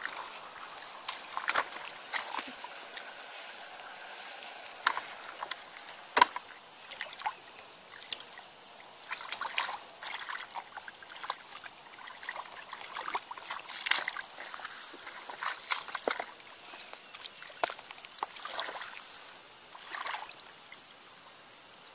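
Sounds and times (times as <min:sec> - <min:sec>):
hands splashing in muddy water: 0:00.0 - 0:03.2, 0:09.0 - 0:16.4, 0:17.2 - 0:19.0, 0:19.8 - 0:20.4.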